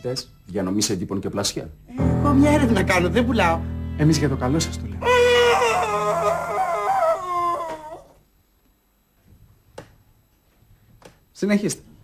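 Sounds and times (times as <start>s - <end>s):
dog-like howl: 5.0s - 8.2s.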